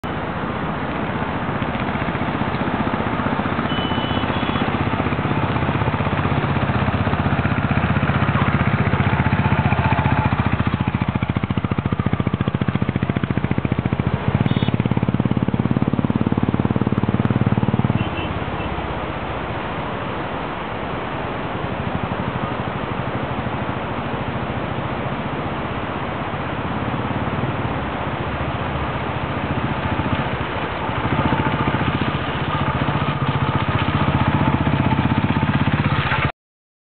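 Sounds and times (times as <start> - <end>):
vehicle engine humming: 0.0 - 36.3.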